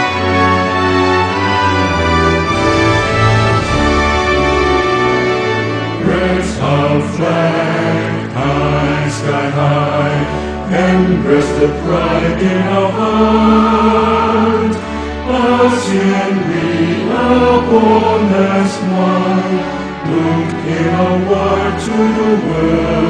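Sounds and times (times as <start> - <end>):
orchestral backing: 0.0 - 23.0
voices singing anthem-like song: 5.7 - 23.0.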